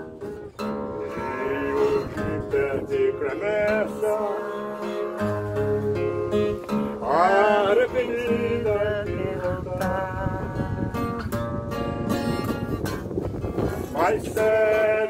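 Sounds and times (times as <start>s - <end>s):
acoustic guitar chords: 0.0s - 15.0s
man singing: 0.9s - 11.3s, 13.7s - 15.0s.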